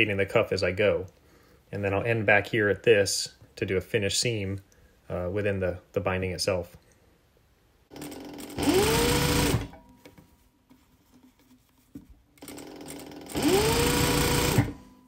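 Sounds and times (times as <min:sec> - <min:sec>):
sewing machine whining: 0:07.9 - 0:09.8, 0:12.4 - 0:14.9.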